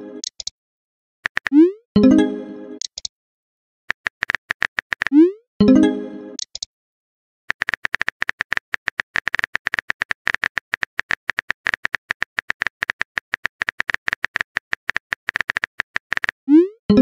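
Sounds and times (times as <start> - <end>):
phone keyboard key clicks: 2.8 - 3.1, 6.4 - 6.7.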